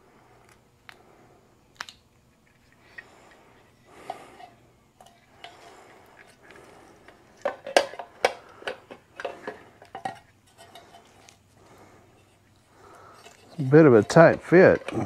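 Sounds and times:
handling clicks and knocks: 7.4 - 11.0, 13.4 - 15.0.

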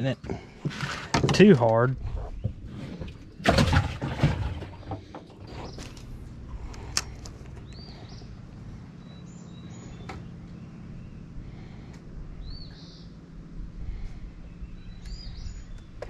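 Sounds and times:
rustling and clatter: 0.3 - 6.2.

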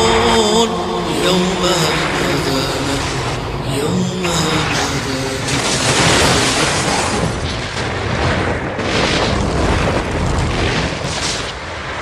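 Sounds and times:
explosions booming rumble: 2.7 - 11.8.

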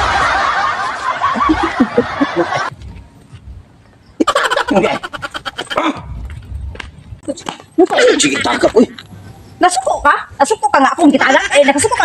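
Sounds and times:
crowd laughing: 0.0 - 2.7, 4.2 - 5.8.

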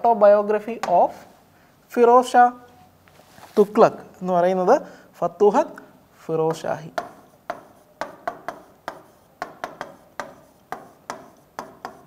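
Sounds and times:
marker pen writing on a board: 6.5 - 12.0.

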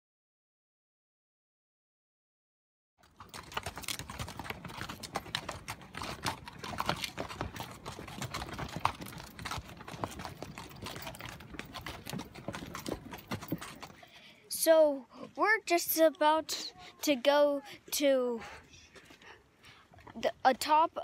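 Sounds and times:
mule hooves clip-clopping on rocks: 3.0 - 14.3.

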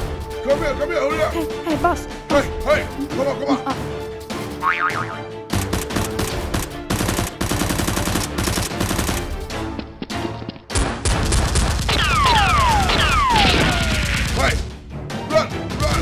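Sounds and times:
background music: 0.0 - 16.0
automatic gunfire: 5.6 - 9.3.

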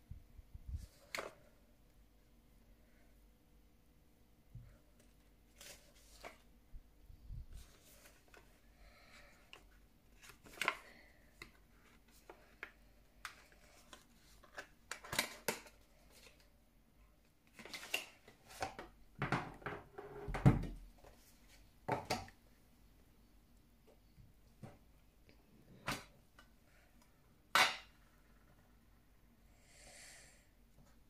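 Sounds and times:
cardboard sleeve rustling: 7.5 - 8.6.

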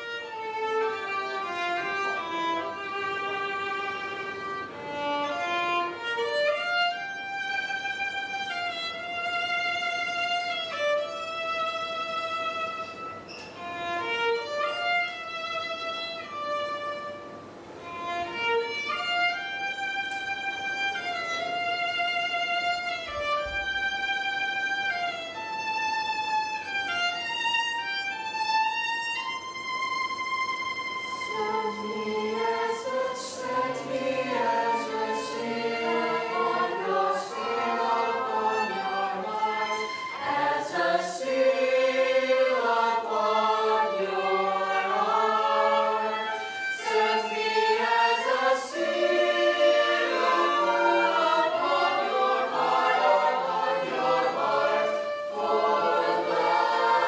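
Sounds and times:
violin holding a long note: 0.0 - 57.0
choir singing: 31.0 - 57.0.

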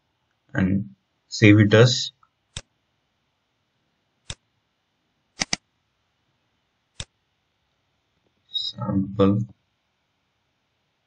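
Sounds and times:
computer mouse clicking: 4.2 - 4.4, 5.4 - 5.6.

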